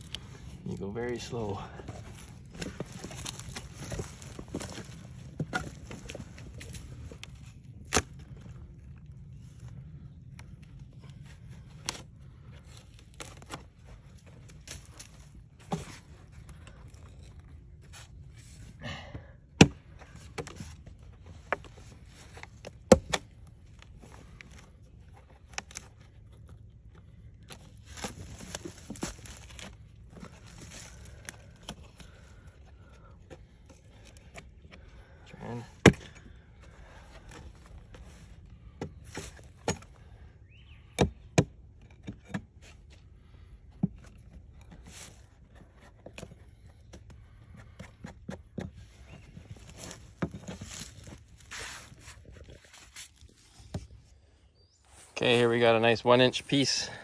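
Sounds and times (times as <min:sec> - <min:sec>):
axe striking log: 0:19.6 - 0:20.6, 0:22.8 - 0:23.3, 0:35.8 - 0:36.1, 0:41.0 - 0:41.5.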